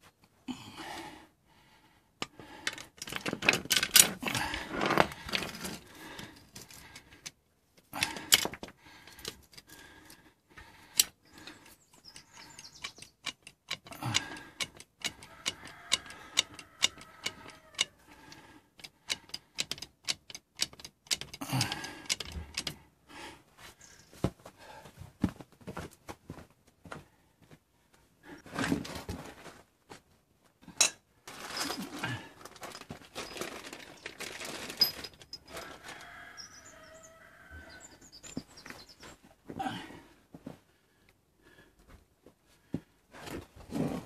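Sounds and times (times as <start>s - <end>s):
trolley jack clicking and clattering: 2.7s - 5.8s, 18.8s - 22.8s.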